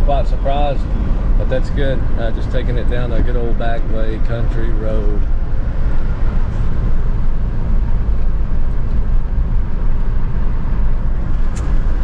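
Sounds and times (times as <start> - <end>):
road and engine rumble in car: 0.0 - 12.0.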